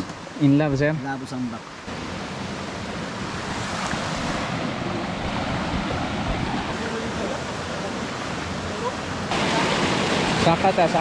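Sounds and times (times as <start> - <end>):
creek water pouring over rocks: 6.7 - 11.0.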